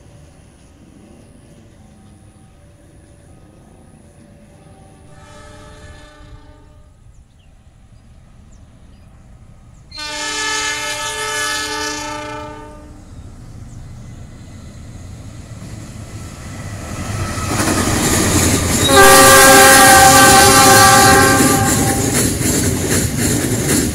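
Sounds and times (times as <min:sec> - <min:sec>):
locomotive rumble: 0:00.0 - 0:23.9
locomotive air horn blasts: 0:05.1 - 0:07.0, 0:10.0 - 0:13.0, 0:18.8 - 0:22.1.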